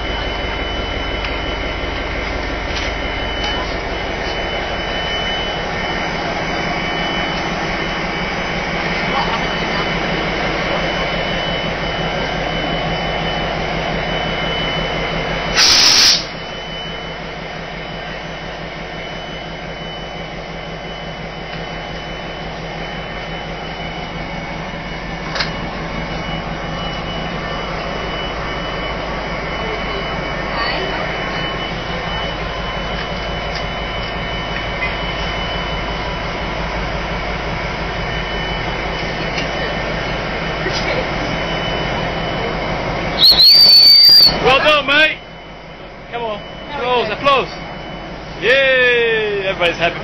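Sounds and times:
diesel locomotive engine idling: 0.0s - 50.0s
loud burst of hiss: 15.6s - 16.3s.

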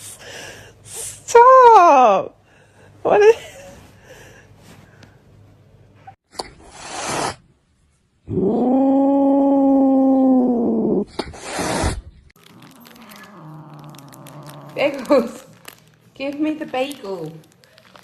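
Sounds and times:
cat hissing: 6.6s - 7.4s, 10.8s - 12.1s.

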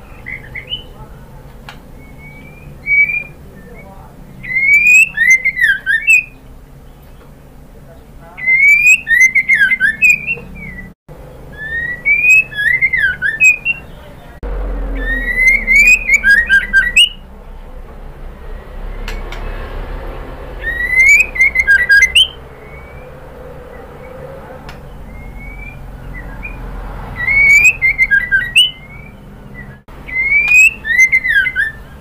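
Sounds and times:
bird singing whistled phrases: 0.0s - 1.0s, 2.0s - 6.4s, 8.4s - 14.2s, 14.9s - 17.2s, 20.6s - 32.0s.

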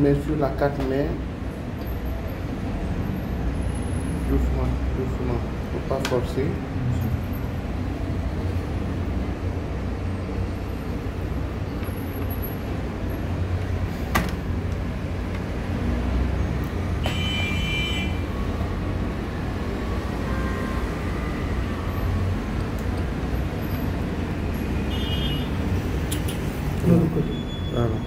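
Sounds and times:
sharp click: 26.1s - 26.5s.

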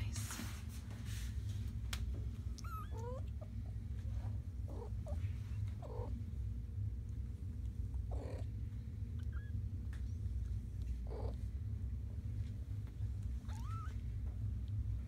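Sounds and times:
cat purring: 2.3s - 15.0s
kittens mewing: 2.5s - 3.7s, 4.6s - 6.2s, 8.0s - 9.7s, 11.0s - 11.5s, 13.4s - 14.0s.

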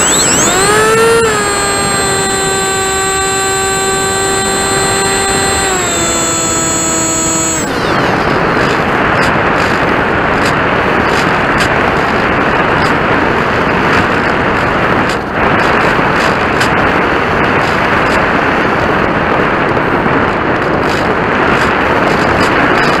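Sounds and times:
model airplane motor noise: 0.0s - 23.0s.

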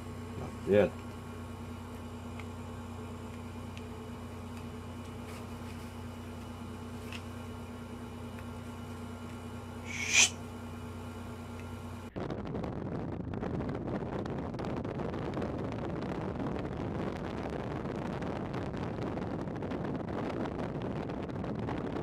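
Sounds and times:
low electrical hum: 0.0s - 22.0s
sharp puff of breath: 9.8s - 10.4s.

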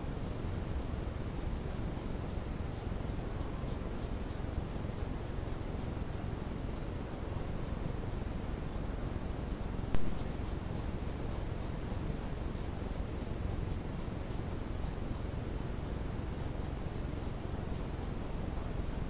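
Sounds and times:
low hiss and rumble: 0.0s - 19.0s.

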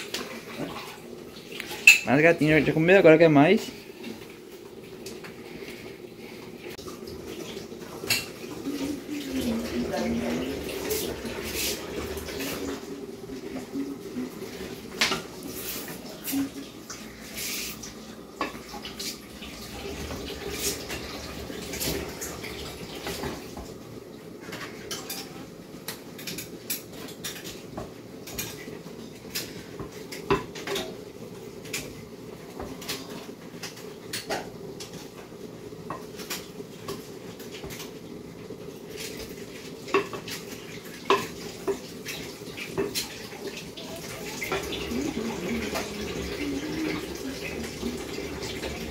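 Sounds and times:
dishes and cutlery clinking: 1.6s - 2.2s, 24.5s - 28.7s, 39.9s - 47.7s.

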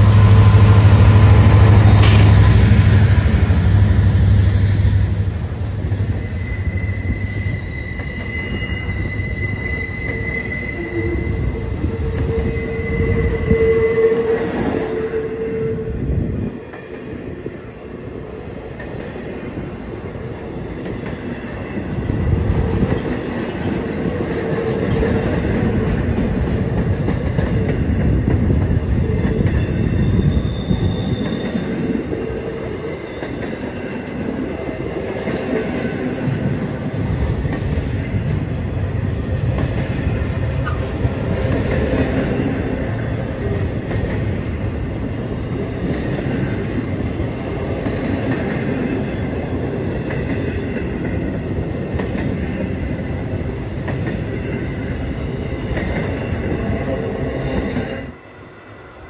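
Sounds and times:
freight train rolling past: 0.0s - 59.0s
high wheel squeal: 6.0s - 15.5s, 29.6s - 32.0s.

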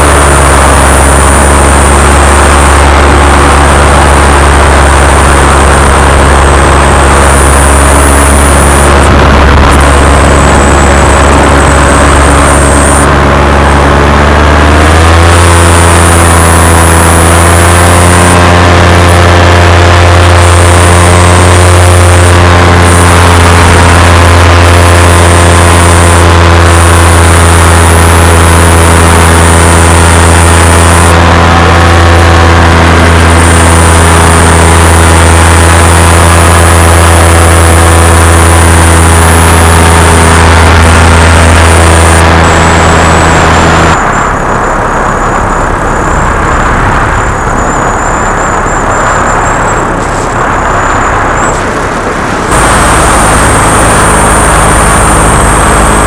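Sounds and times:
wind rush: 0.0s - 19.0s, 38.6s - 56.0s
paramotor engine drone: 0.0s - 56.0s.

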